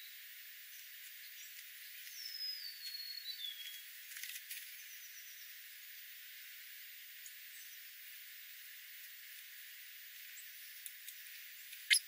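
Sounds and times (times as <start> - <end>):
steady hiss: 0.0 - 12.0
sparrow whistling song: 2.1 - 3.8.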